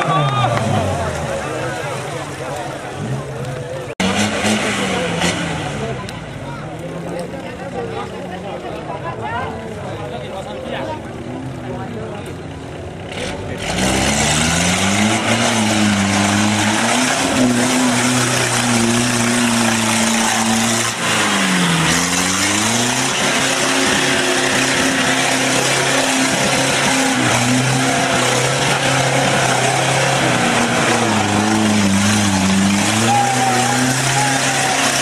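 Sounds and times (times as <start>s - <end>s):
engine revving hard: 4.0s - 6.1s, 13.1s - 35.0s.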